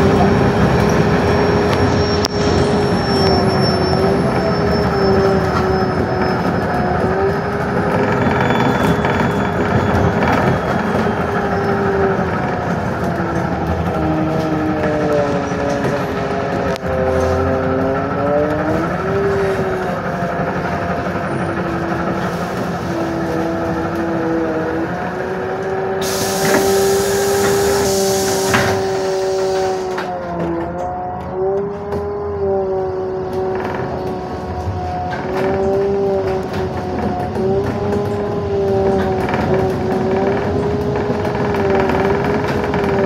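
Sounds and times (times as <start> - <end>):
air hiss: 26.0 - 29.8.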